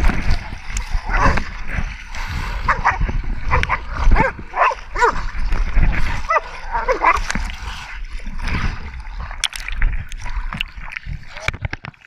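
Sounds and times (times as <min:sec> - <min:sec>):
splashing through shallow water: 0:00.0 - 0:12.0
dogs barking and yelping: 0:01.1 - 0:01.4, 0:02.6 - 0:05.3, 0:06.2 - 0:07.3.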